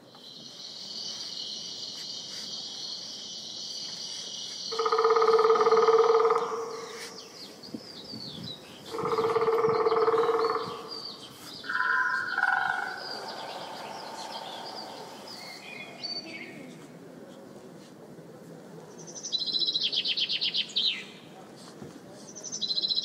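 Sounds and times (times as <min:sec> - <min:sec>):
small birds chirping: 0:00.0 - 0:16.9.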